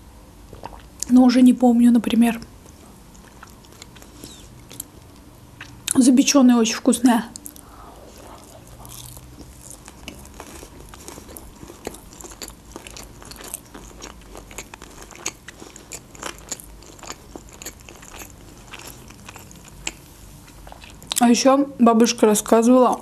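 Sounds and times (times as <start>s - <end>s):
woman chewing food: 2.5s - 6.0s, 7.4s - 21.2s.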